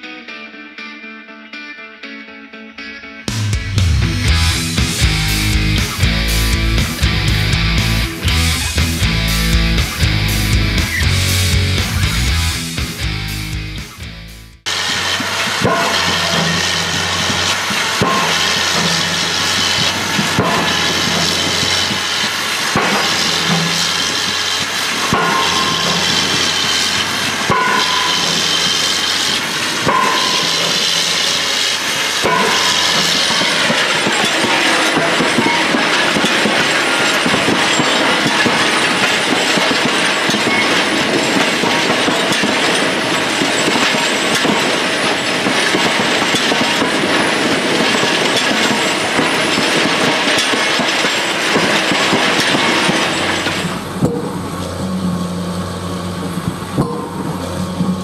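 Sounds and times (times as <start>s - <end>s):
diesel engine running: 3.3s - 58.0s
hammers clattering on concrete: 15.4s - 54.4s
drop hammer striking concrete: 15.5s - 54.4s.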